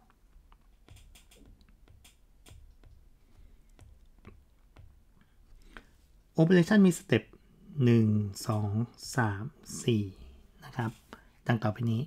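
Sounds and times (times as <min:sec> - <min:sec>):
stylus tapping on a tablet: 0:00.0 - 0:05.8.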